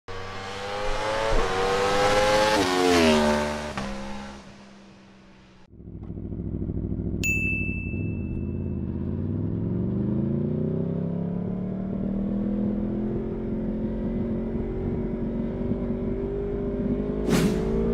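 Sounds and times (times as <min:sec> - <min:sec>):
motorcycle engine revving: 0:00.1 - 0:05.0, 0:05.6 - 0:17.9
high steady tone: 0:07.2 - 0:09.2.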